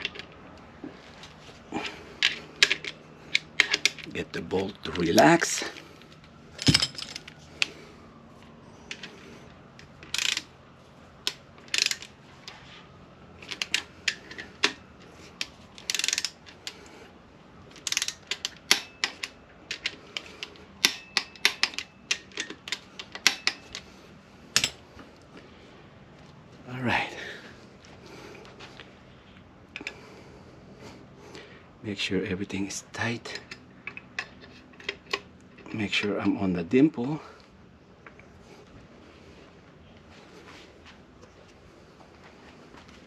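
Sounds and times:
ratchet wrench clicking on bolts: 10.1s - 10.5s, 11.7s - 12.1s, 15.8s - 16.8s, 17.8s - 23.8s.

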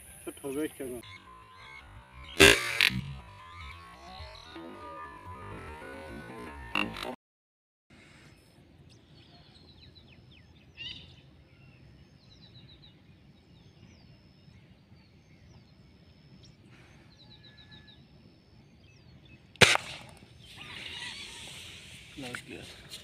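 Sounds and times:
small birds chirping: 0.0s - 7.1s, 8.1s - 23.0s
air rifle firing: 19.6s - 20.2s.

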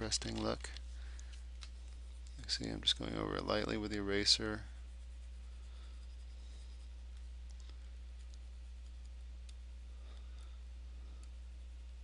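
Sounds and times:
low hum: 0.0s - 12.0s.

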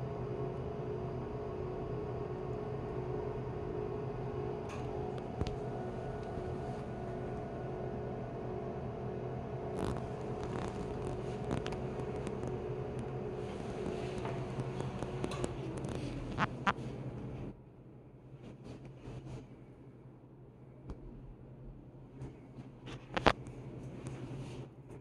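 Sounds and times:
electrical hum of cabinet: 0.0s - 25.0s.

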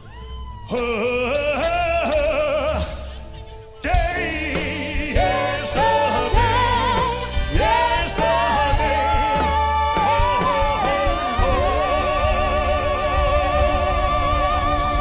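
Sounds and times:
live band playing slow song: 0.2s - 15.0s
person singing lead vocal: 0.7s - 15.0s
backing singers: 3.8s - 15.0s.

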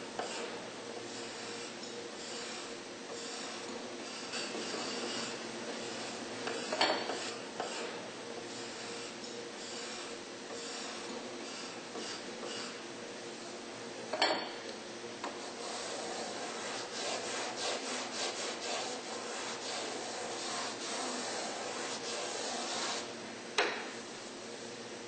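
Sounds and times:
rasping wood strokes: 15.3s - 23.1s.

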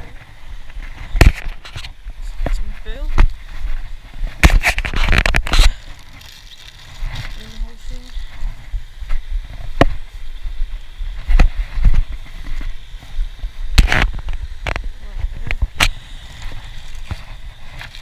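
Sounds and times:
wind rumble on microphone: 0.0s - 18.0s
plastic bag crinkling: 4.8s - 8.3s.

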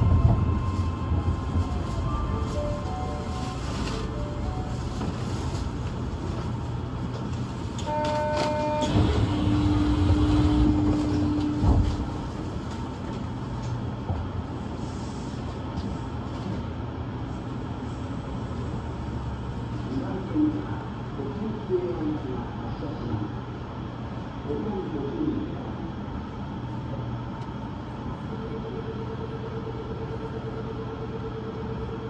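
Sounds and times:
train rumbling: 0.0s - 32.0s
train running noise: 0.0s - 32.0s
short two-note tone: 7.9s - 11.6s
steady lower tone: 27.7s - 32.0s.

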